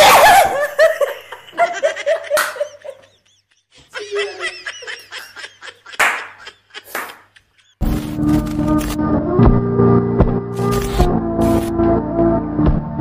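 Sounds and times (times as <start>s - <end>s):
people laughing: 0.0s - 7.8s.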